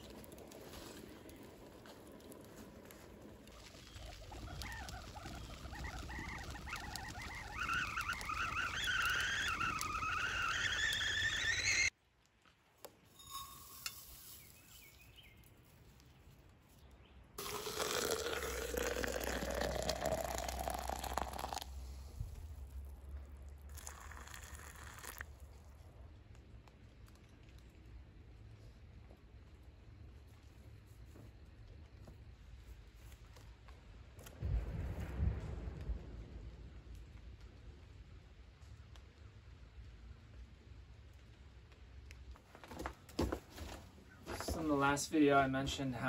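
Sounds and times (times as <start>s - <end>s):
kettle whistle: 7.2s - 11.9s
hot water poured into mug: 17.4s - 21.7s, 23.7s - 25.3s.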